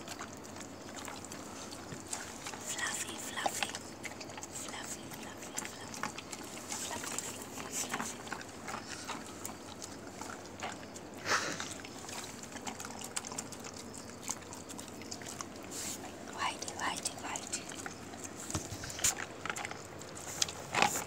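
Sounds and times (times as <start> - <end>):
dogs lapping and chewing: 0.0 - 21.0.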